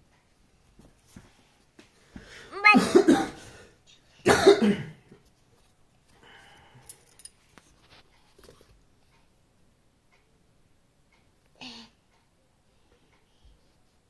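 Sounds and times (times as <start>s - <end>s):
child coughing: 2.5s - 3.5s, 4.2s - 5.0s.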